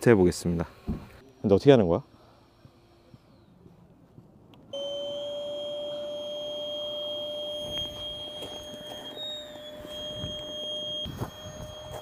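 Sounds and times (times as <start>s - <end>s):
electric air pump whining: 4.7s - 12.0s.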